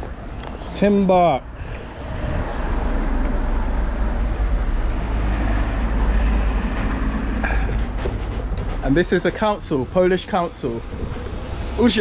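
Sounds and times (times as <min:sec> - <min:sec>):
vehicle engine roar: 0:00.0 - 0:12.0.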